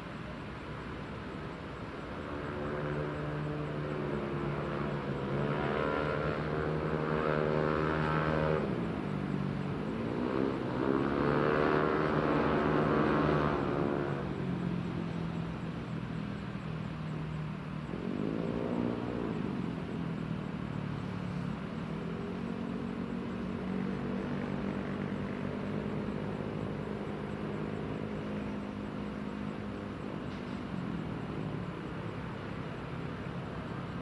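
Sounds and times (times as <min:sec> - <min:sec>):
vehicle engines passing: 0:00.0 - 0:34.0
engine revving: 0:02.3 - 0:14.3, 0:17.8 - 0:32.6.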